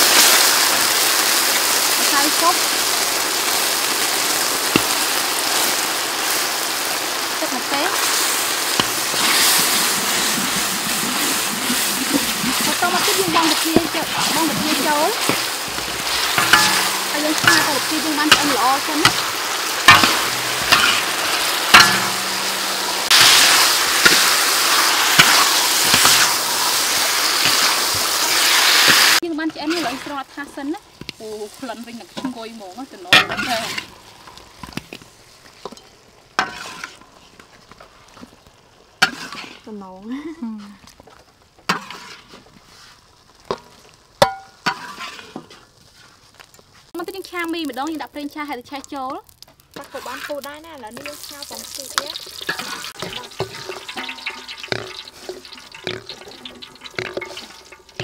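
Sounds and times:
shrimp sizzling: 0:00.0 - 0:58.0
metal spatula scraping wok: 0:07.6 - 0:35.0, 0:35.6 - 0:38.0, 0:39.0 - 0:39.9, 0:41.6 - 0:43.6, 0:44.2 - 0:46.1, 0:49.8 - 0:58.0
eggs knocking and splashing: 0:08.5 - 0:29.7, 0:48.8 - 0:58.0.

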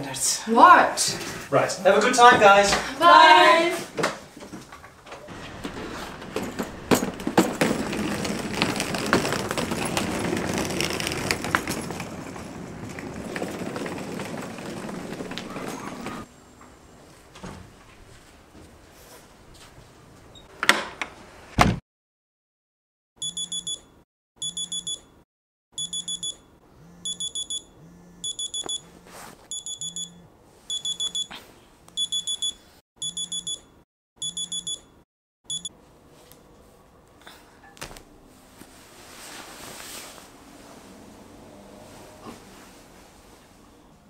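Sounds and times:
phone alarm beeping: 0:23.2 - 0:25.1, 0:25.8 - 0:35.7.

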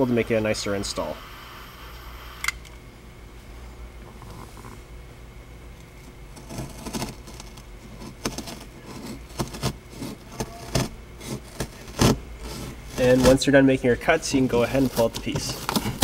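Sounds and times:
utility knife scratching headliner: 0:06.4 - 0:13.5, 0:14.5 - 0:16.0.

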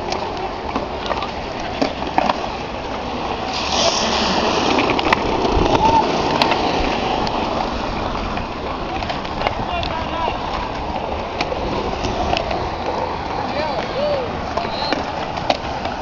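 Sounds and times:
skateboard clacks: 0:00.0 - 0:03.5, 0:04.1 - 0:16.0
skateboard wheels rolling on concrete: 0:00.0 - 0:16.0
skateboard scraping hiss: 0:03.4 - 0:06.9.

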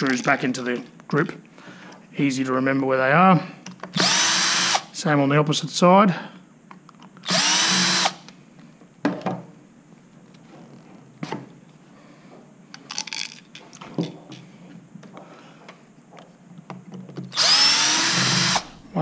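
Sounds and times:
cordless drill spinning: 0:04.0 - 0:04.9, 0:07.2 - 0:08.3, 0:17.3 - 0:18.8.

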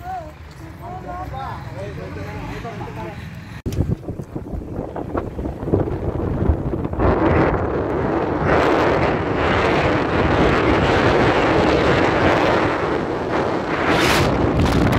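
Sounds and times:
car road noise: 0:00.0 - 0:14.9
wind rushing over microphone: 0:03.5 - 0:14.9.

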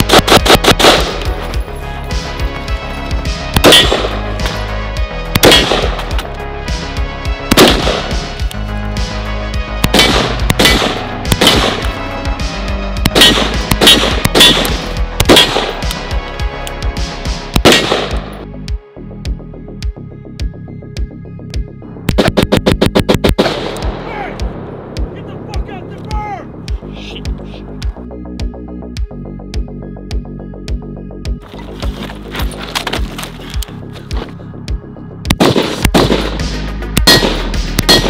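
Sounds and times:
rifle gunfire: 0:00.0 - 0:01.4, 0:03.6 - 0:04.3, 0:05.3 - 0:06.2, 0:07.5 - 0:08.2, 0:09.8 - 0:12.0, 0:13.0 - 0:15.9, 0:17.6 - 0:18.3, 0:22.2 - 0:24.0, 0:35.3 - 0:36.4, 0:37.0 - 0:38.0
background music with bass: 0:00.0 - 0:38.0.

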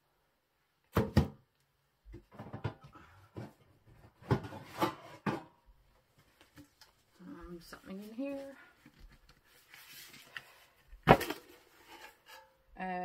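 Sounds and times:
metal tins knocking and scraping: 0:04.2 - 0:05.6, 0:11.1 - 0:12.6.

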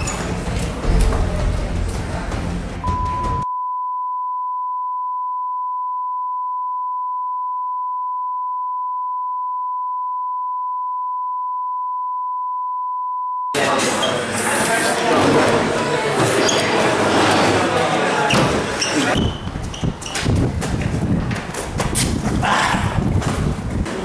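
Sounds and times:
test tone beep: 0:02.8 - 0:13.5.

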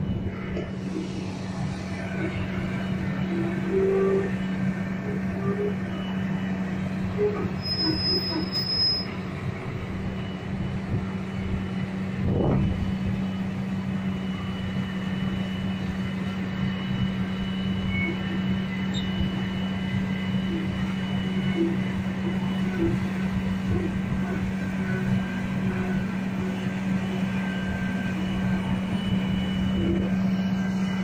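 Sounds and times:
engine rumbling surge: 0:00.0 - 0:05.1
excavator diesel engine running: 0:00.0 - 0:31.0
hydraulics and tracks squealing: 0:00.0 - 0:31.0.

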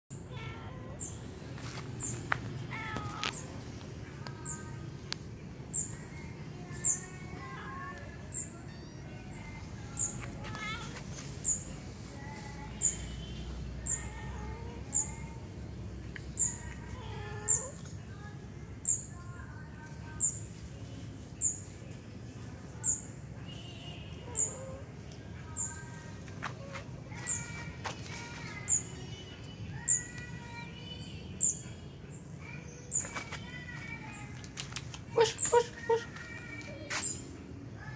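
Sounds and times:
low background hum: 0:00.1 - 0:37.9
bird chirping high: 0:06.7 - 0:07.2, 0:09.8 - 0:11.8, 0:32.4 - 0:34.3, 0:35.1 - 0:37.4
small bird chirping: 0:11.4 - 0:14.2.

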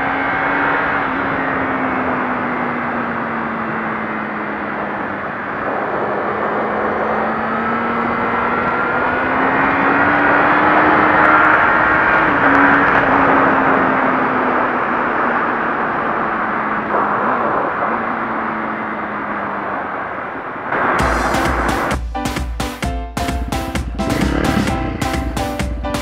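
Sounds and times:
wind noise: 0:00.0 - 0:21.9
motorcycle engine running: 0:23.3 - 0:26.0.

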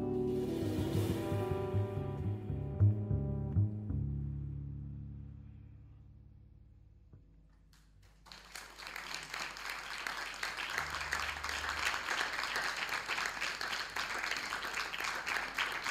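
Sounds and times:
low double bass note: 0:00.0 - 0:07.3
audience applause: 0:08.2 - 0:15.9.

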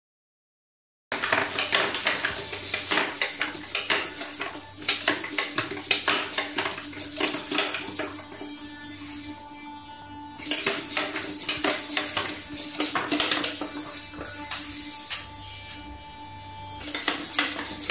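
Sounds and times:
robot parts clicking and clattering: 0:01.2 - 0:08.1
faint servo hum: 0:01.2 - 0:17.9.

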